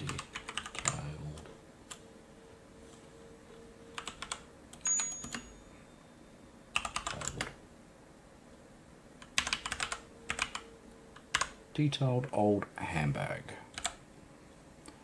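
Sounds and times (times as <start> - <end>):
typing on computer keyboard: 0.0 - 1.0, 4.0 - 5.4, 6.8 - 7.6, 9.2 - 11.6, 13.7 - 14.0.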